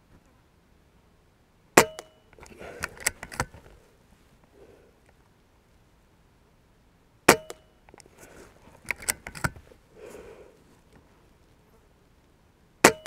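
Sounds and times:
rifle bolt clicks: 1.9 - 3.6, 8.8 - 9.6.

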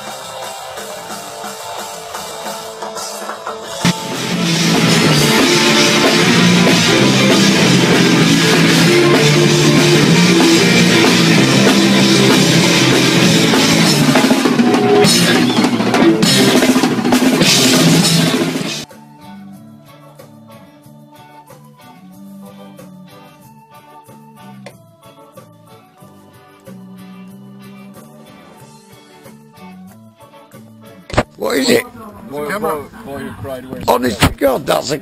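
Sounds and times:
drum kit: 0.0 - 19.0, 31.0 - 31.9
electric guitar riff: 0.0 - 20.8, 26.0 - 31.8.

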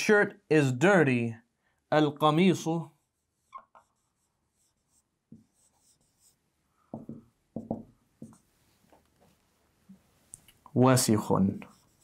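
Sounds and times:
pen writing on a board: 3.4 - 8.5, 11.6 - 12.0.

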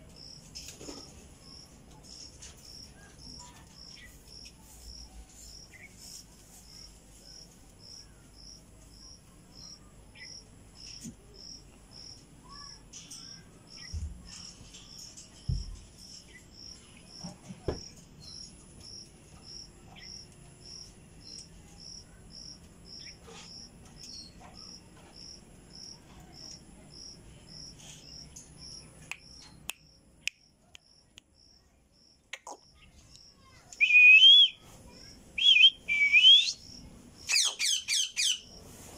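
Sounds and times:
cricket chirping: 0.2 - 1.8, 2.6 - 5.7, 6.6 - 14.0, 14.9 - 38.5
parrot whistling call: 33.8 - 34.6, 35.4 - 36.6.

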